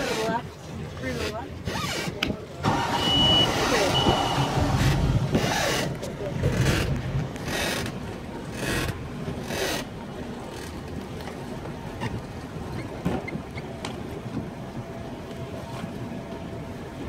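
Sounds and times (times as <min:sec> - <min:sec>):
motorboat engine rumble: 0:00.0 - 0:17.0.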